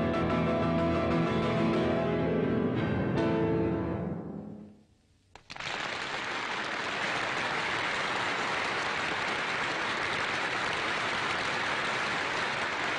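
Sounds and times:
audience applauding: 5.4s - 12.9s.

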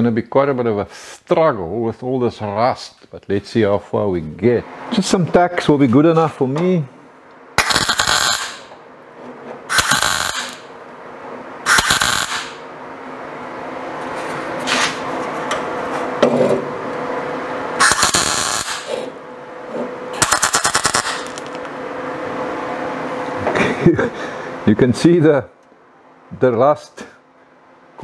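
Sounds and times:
welder arc crackling: 7.6s - 8.7s, 9.7s - 10.7s, 11.7s - 12.6s, 17.8s - 18.9s, 20.2s - 21.7s.

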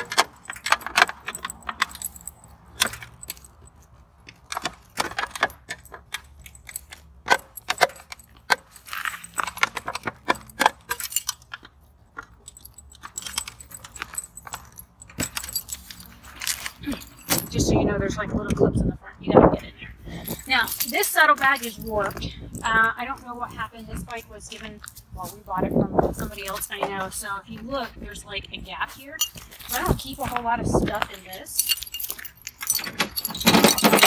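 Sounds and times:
keys jangling: 0.0s - 17.6s, 20.0s - 26.9s, 28.4s - 34.0s.

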